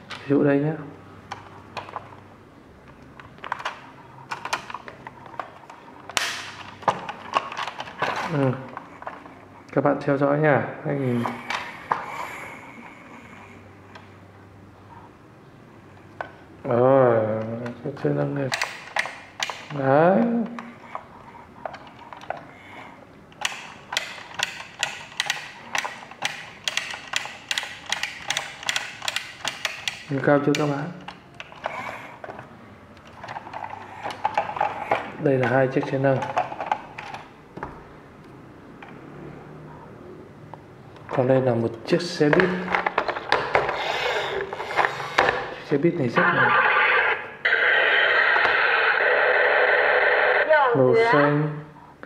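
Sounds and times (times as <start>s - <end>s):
plastic toy clicks and taps: 23.4s - 31.5s.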